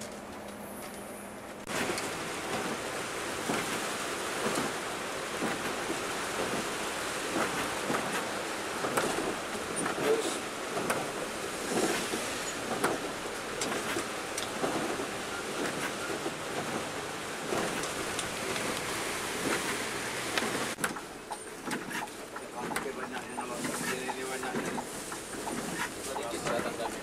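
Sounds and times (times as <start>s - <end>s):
heavy rain on windshield: 1.6s - 27.0s.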